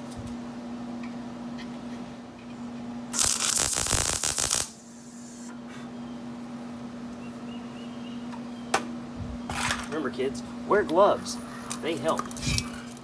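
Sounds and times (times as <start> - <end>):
steady low hum: 0.0 - 13.0
welder arc crackling: 3.1 - 5.5.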